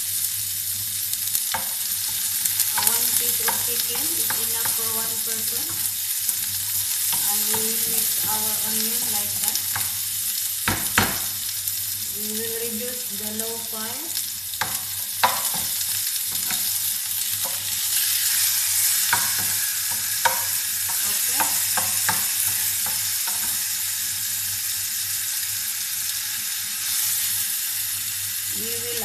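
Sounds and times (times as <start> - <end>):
food sizzling in a frying pan: 0.0 - 29.0
spatula scraping and knocking pan: 1.5 - 10.0, 14.6 - 23.7.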